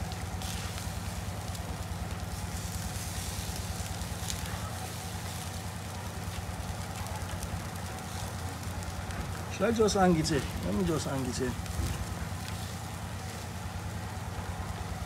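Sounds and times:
meat sizzling on a grill: 0:00.0 - 0:15.0.

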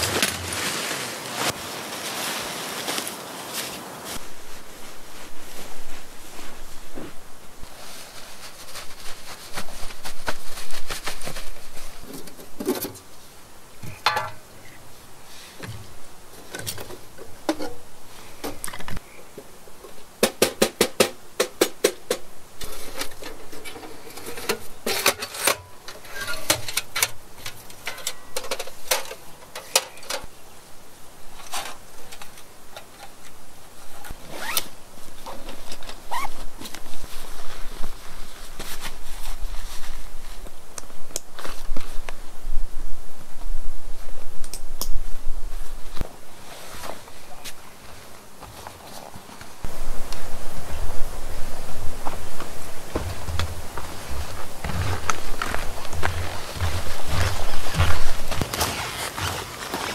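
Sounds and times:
rustling of bags and fabric: 0:00.0 - 0:13.3, 0:31.3 - 0:42.4, 0:45.0 - 0:59.9.

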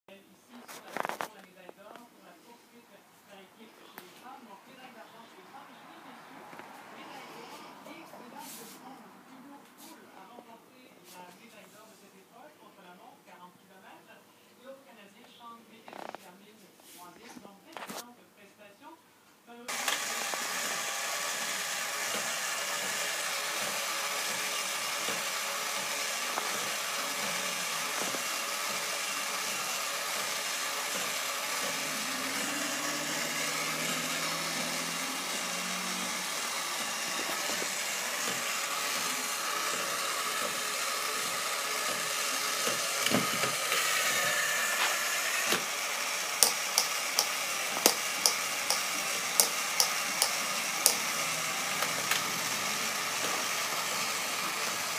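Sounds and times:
toy robot motor whirring: 0:19.7 - 0:54.9.

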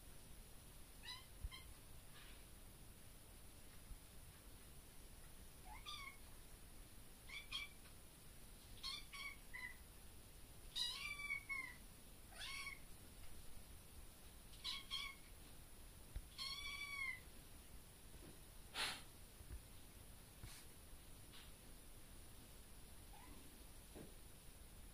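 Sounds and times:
kitten meowing: 0:10.8 - 0:12.8, 0:16.3 - 0:17.2.

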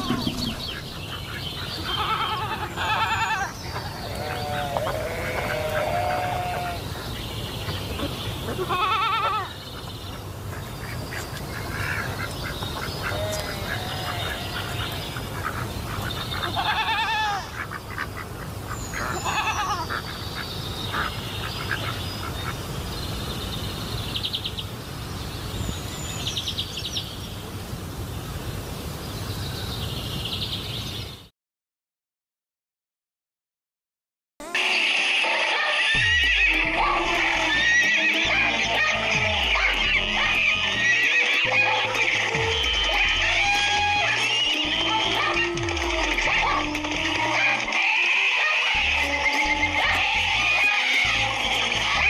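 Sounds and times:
high bird chirps: 0:00.0 - 0:02.2
wavering animal calls: 0:00.0 - 0:07.2, 0:07.9 - 0:09.6, 0:12.8 - 0:15.6, 0:16.2 - 0:17.7, 0:34.5 - 0:52.0.

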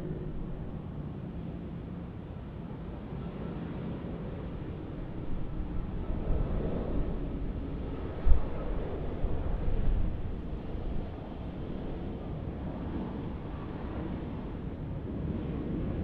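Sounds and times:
wind buffeting microphone: 0:04.2 - 0:16.0.

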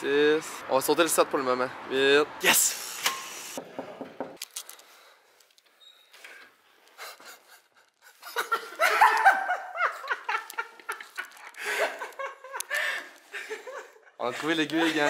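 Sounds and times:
loud laughter: 0:07.0 - 0:14.2.

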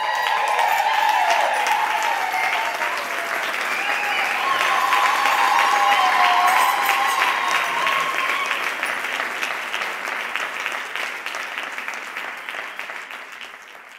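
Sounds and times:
high held cry: 0:00.0 - 0:08.9
audience applauding: 0:00.0 - 0:13.9.

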